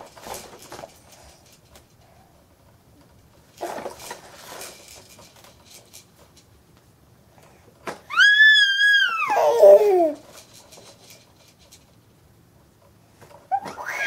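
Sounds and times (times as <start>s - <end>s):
baby squealing: 8.1s - 10.2s, 13.5s - 14.0s.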